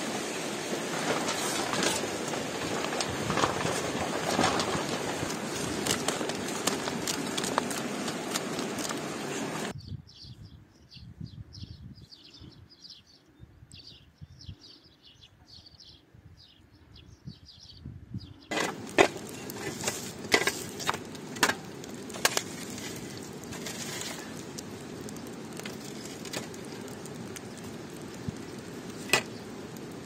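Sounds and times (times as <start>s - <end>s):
embers crackling and hissing: 0.0s - 9.8s, 18.5s - 30.0s
shovel scraping on stones: 0.9s - 9.7s, 18.5s - 24.4s.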